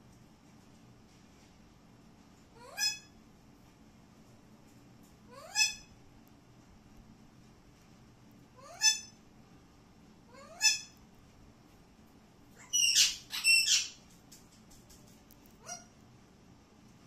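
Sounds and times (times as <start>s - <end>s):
parakeet harsh screeches: 2.6s - 3.1s, 5.3s - 5.9s, 8.6s - 9.2s, 10.3s - 11.0s, 12.6s - 14.0s
parakeet rising calls: 12.6s - 14.0s.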